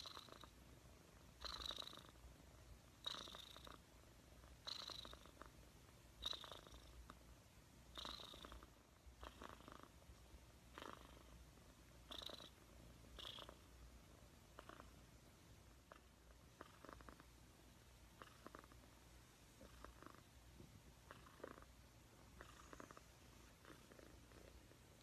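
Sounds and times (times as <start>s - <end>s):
cat purring: 0.0s - 25.0s.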